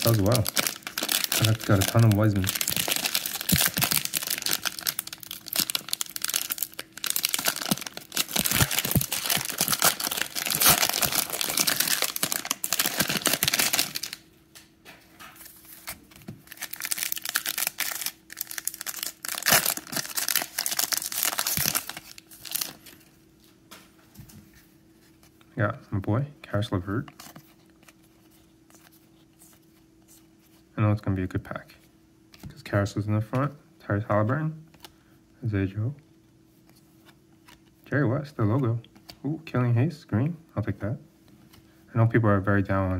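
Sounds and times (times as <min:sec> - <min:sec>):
plastic wrappers crinkling: 0:00.0 - 0:14.2, 0:15.6 - 0:23.1
faint steady hum: 0:00.0 - 0:42.9.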